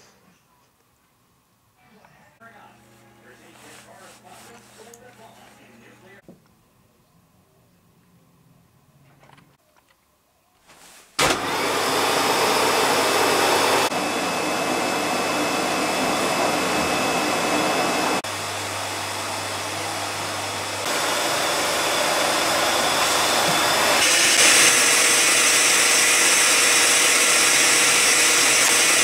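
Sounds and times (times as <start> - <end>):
vacuum cleaner running: 2.4 - 6.2, 11.2 - 29.0.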